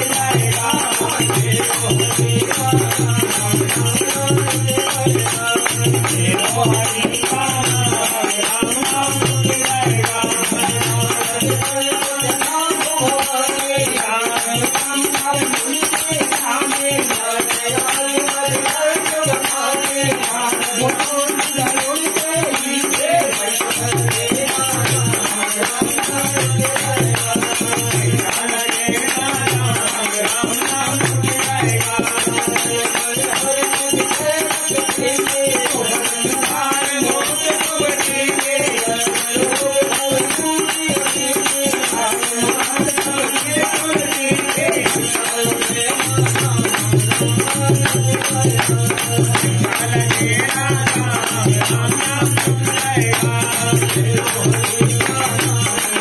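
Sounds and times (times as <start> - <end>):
hand percussion jingling: 0.0 - 56.0
man singing devotional song: 0.0 - 56.0.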